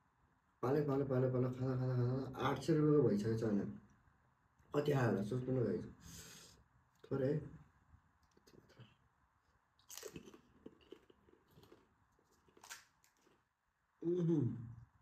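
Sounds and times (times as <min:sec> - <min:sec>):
crisp shells crunching: 0:09.8 - 0:13.4.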